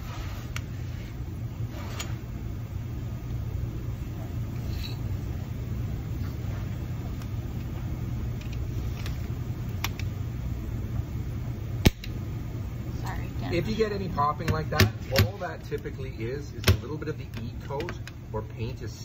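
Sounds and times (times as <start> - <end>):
low hum: 0.0 - 19.0
sharp pop of welding gun: 11.8 - 12.2.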